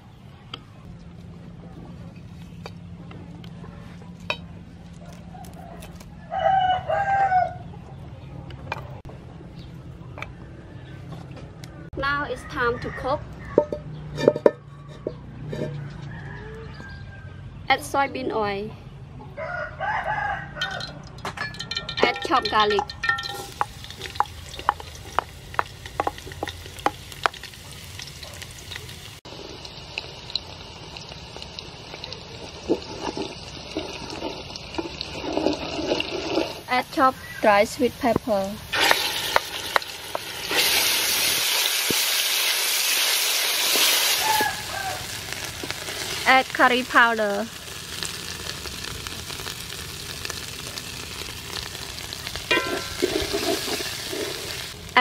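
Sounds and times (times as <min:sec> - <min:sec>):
rooster crowing: 0:05.3 - 0:07.7, 0:14.6 - 0:17.6, 0:19.3 - 0:21.1, 0:44.0 - 0:45.5
wooden spoon scraping a pot: 0:14.2 - 0:15.8, 0:32.6 - 0:36.8, 0:52.5 - 0:54.8
sharp ticks of frying: 0:20.6 - 0:55.0
garlic frying in oil: 0:20.8 - 0:55.0.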